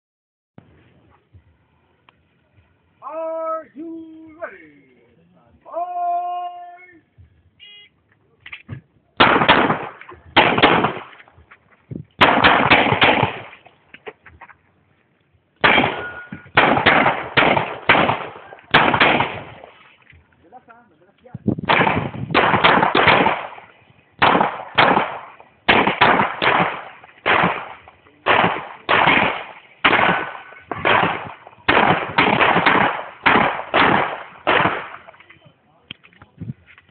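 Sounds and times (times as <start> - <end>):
pistol shots with echo: 9.2 - 11.2, 12.2 - 13.6, 15.6 - 19.8, 21.6 - 35.2.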